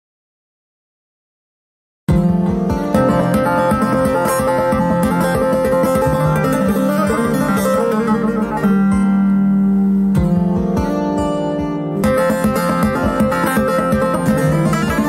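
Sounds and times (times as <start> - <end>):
plucked lute runs: 2.1 - 15.0.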